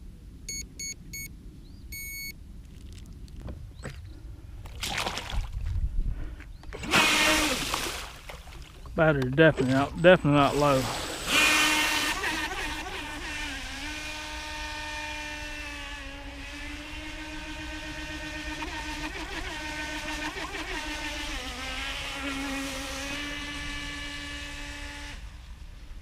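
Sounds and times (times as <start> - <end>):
jet boat motor whine: 6.6 - 7.7, 8.8 - 25.8.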